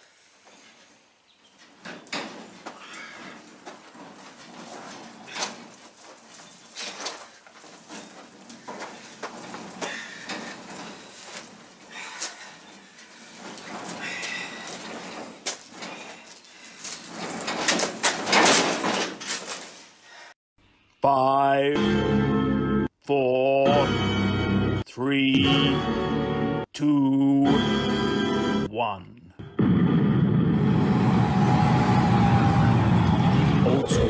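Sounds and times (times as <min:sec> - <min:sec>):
birds chirping: 0:00.5 - 0:02.2
caster wheels crunching on gravel: 0:01.5 - 0:19.8.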